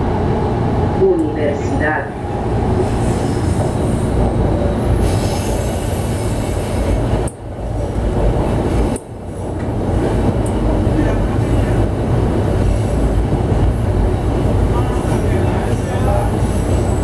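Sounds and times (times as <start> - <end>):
train passing alongside: 0.0 - 17.0
train wheels rumbling: 0.0 - 17.0.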